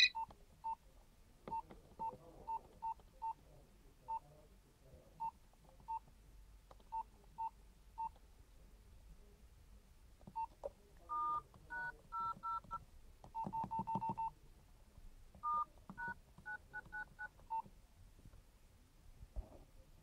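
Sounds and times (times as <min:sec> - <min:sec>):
phone keypad beeps: 0:00.0 - 0:00.8, 0:13.4 - 0:14.3, 0:15.4 - 0:17.6.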